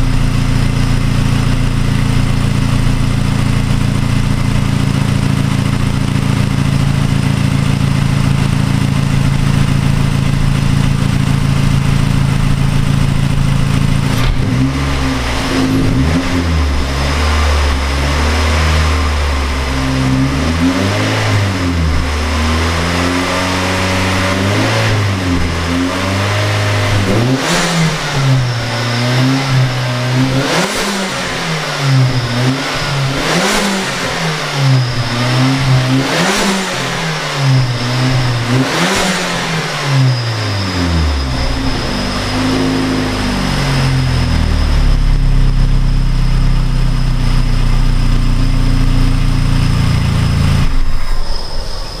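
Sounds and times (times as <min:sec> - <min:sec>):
car engine revving: 0:00.0 - 0:52.0
turbo noise bursts: 0:36.4 - 0:45.0.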